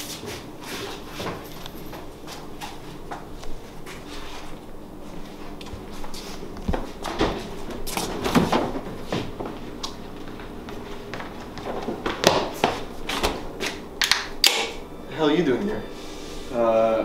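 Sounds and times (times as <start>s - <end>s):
footsteps: 0.0s - 13.9s.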